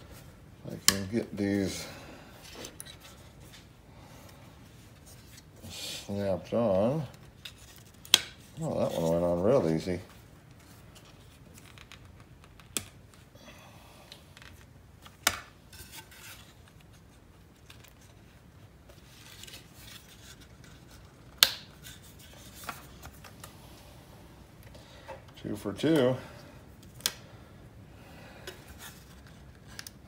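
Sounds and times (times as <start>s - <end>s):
plastic clips snapping: 26.8s - 27.2s.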